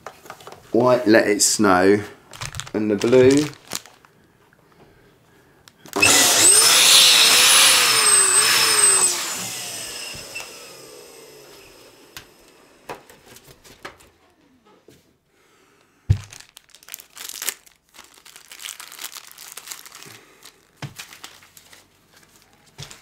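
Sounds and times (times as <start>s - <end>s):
electric balloon pump motor: 5.9s - 13.1s.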